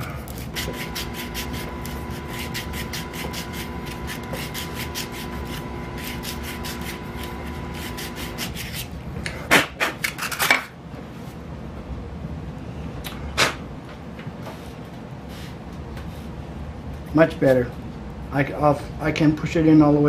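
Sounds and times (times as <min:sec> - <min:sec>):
sandpaper rasping in plastic pipe: 0:00.0 - 0:08.9.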